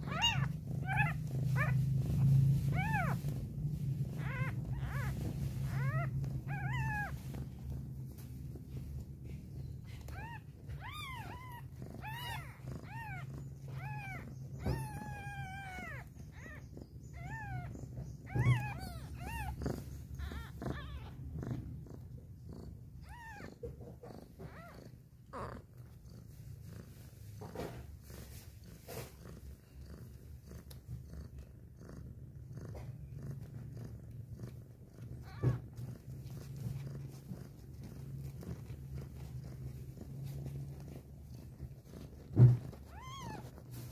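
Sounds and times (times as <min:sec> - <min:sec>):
kittens mewing: 0:00.0 - 0:07.6, 0:09.8 - 0:21.8, 0:40.8 - 0:43.9
cat purring: 0:00.0 - 0:43.9.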